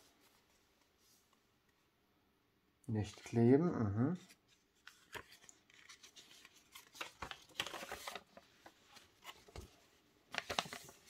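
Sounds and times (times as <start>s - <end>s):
paper leaflet rustling: 4.3s - 11.0s.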